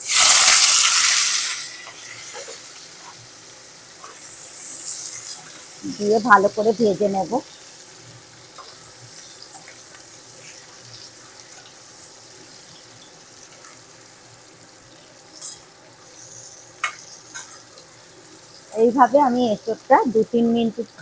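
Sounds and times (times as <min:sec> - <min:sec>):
food sizzling in hot oil: 0:00.0 - 0:21.0.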